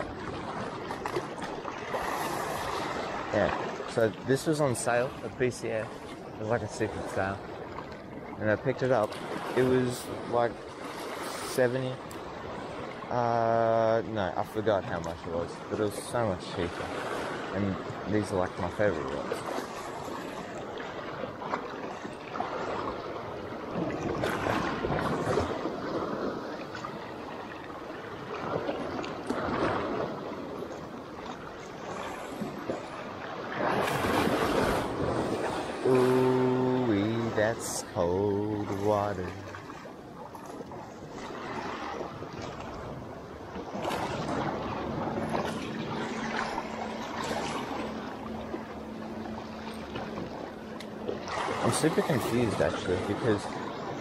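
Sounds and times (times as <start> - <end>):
seawater lapping around legs: 0.0 - 13.2, 14.5 - 54.0
small waves washing over rocks: 23.7 - 48.5, 51.1 - 54.0.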